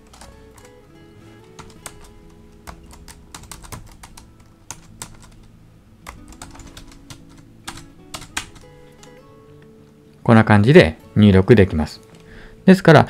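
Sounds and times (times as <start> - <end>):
keyboard typing clicks: 0.0 - 0.8, 1.5 - 5.5, 6.1 - 9.2
quiet background music: 0.0 - 13.0.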